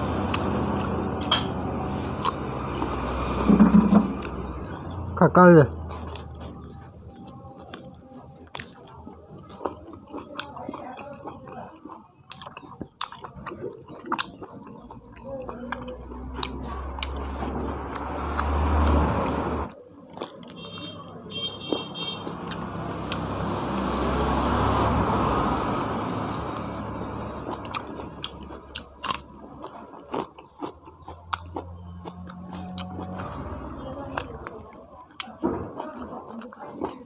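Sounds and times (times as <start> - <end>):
close chewing and biting: 0.1 - 23.9, 25.8 - 37.0
wet mouth clicks: 0.3 - 1.3, 2.2 - 3.0.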